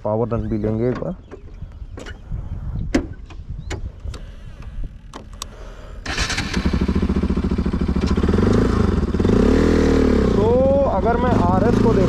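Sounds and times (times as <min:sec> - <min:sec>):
wind on microphone: 0:01.4 - 0:05.2
sharp clicks: 0:02.9 - 0:05.6
motorcycle engine revving: 0:06.1 - 0:12.0.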